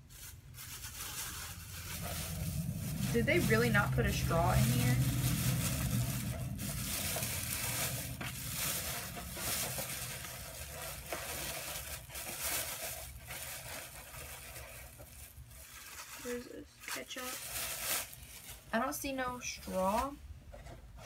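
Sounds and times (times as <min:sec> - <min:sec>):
plastic bag crinkling and rustling: 0:00.0 - 0:20.2.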